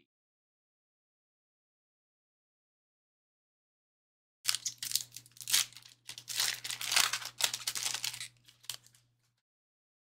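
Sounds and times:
plastic wrapper crinkling and tearing: 0:04.5 - 0:09.0.

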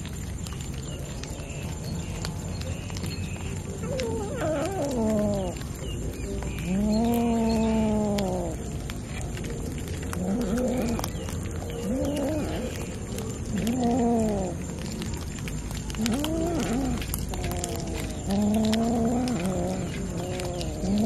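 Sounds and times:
cats meowing: 0:03.0 - 0:08.6, 0:09.4 - 0:15.0, 0:15.7 - 0:21.0.

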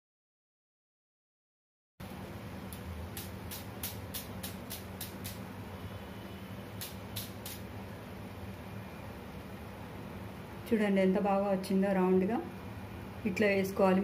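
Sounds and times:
sharp metallic clicks: 0:02.7 - 0:05.4, 0:06.8 - 0:07.6.

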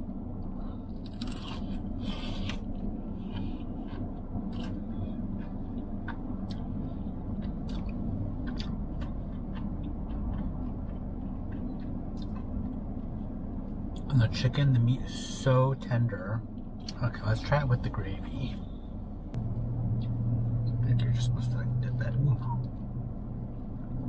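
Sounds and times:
steady low hum: 0:00.0 - 0:24.0
crunching fried chicken skin: 0:00.9 - 0:06.7
chewing clicks: 0:01.0 - 0:13.2.

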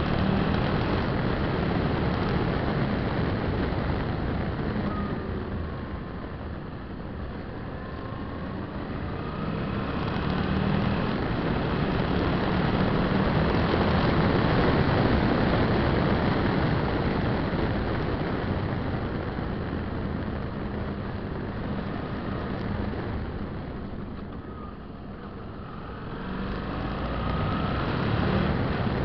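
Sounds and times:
wind rush: 0:00.0 - 0:24.0.

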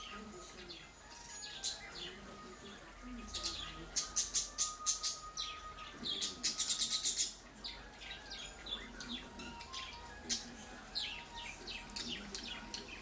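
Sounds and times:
budgerigars chirping: 0:03.2 - 0:13.0.

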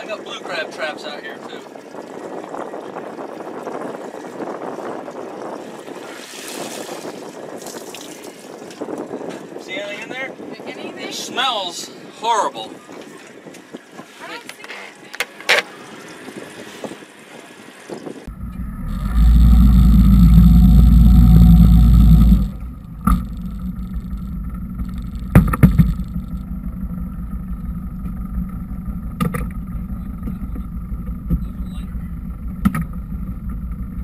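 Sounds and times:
wind rumble on microphone: 0:00.0 - 0:15.0, 0:15.9 - 0:34.0
motorboat engine running: 0:18.3 - 0:34.0
sharp knocks: 0:25.3 - 0:26.2.

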